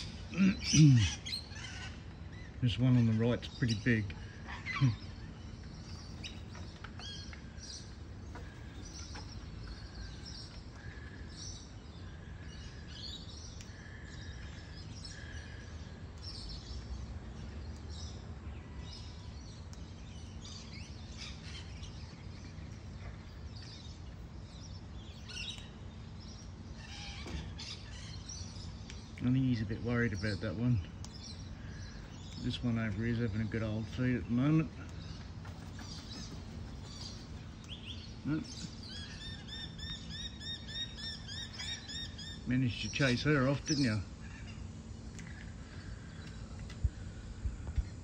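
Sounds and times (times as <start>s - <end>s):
birds chirping and twittering: 0.0s - 48.0s
low background hum: 0.0s - 48.0s.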